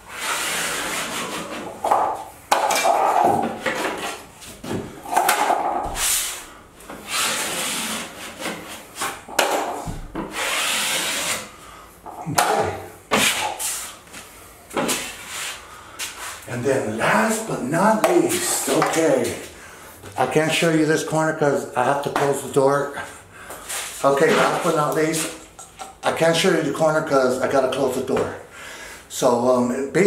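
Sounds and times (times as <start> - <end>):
taping knife scraping drywall: 0.1 - 1.8, 7.0 - 9.2, 10.2 - 11.5.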